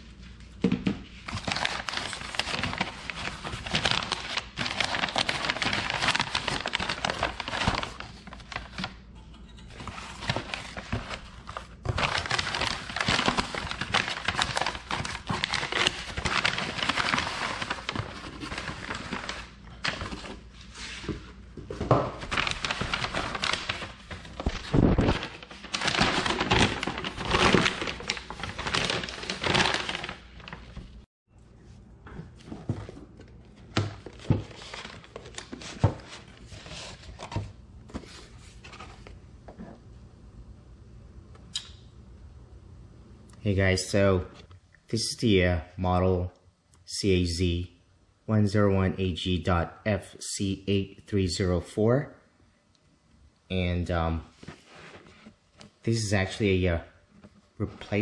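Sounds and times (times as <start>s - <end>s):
packing paper crinkling: 1.1s - 9.0s, 9.8s - 31.1s, 32.4s - 39.2s.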